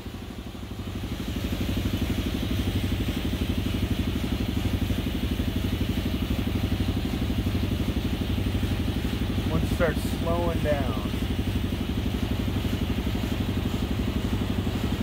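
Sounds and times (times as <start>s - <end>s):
air compressor chugging: 0.0s - 15.0s.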